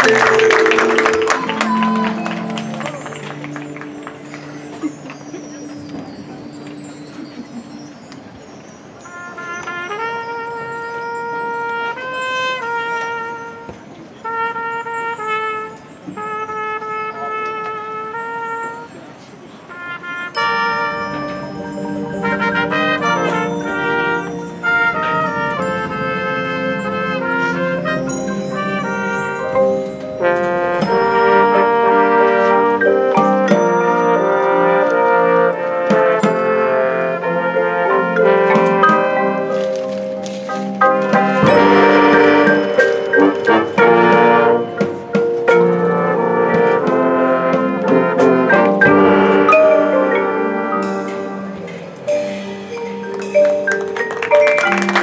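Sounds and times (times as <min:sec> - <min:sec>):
brass horn solo: 0:00.0 - 0:04.8, 0:09.1 - 0:18.9, 0:19.7 - 0:39.8, 0:40.4 - 0:44.9, 0:45.6 - 0:51.6
sharp percussion hits: 0:20.3 - 0:32.4, 0:40.8 - 0:46.1.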